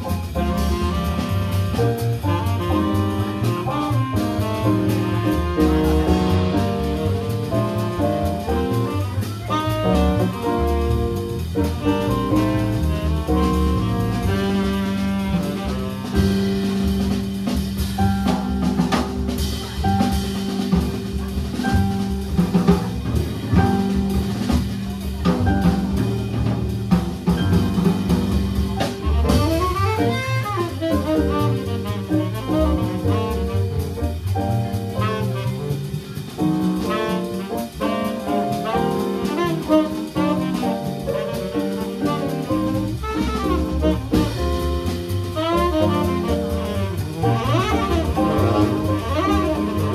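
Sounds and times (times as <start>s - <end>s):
drum kit: 0.0s - 49.9s
keyboard piano: 0.0s - 49.9s
saxophone: 0.2s - 18.4s, 28.5s - 36.2s, 36.8s - 49.9s.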